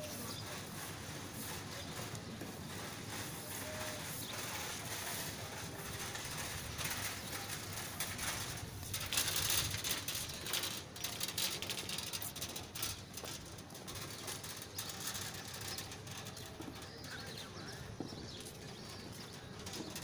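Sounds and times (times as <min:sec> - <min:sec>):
footsteps on paving: 0:00.0 - 0:09.6, 0:16.3 - 0:20.0
rustling near microphone: 0:00.0 - 0:20.0
birds calling: 0:15.5 - 0:20.0.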